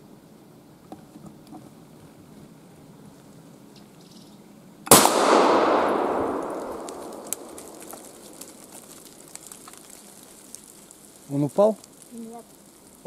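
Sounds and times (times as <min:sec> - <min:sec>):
shotgun shot echoing: 0:04.9 - 0:08.3.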